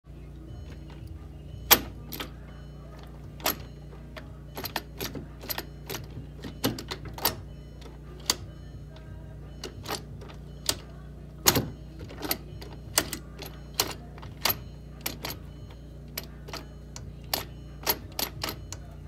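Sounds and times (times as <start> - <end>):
steady low hum: 0.1 - 19.0
gear shifter metallic clicks: 0.5 - 19.0.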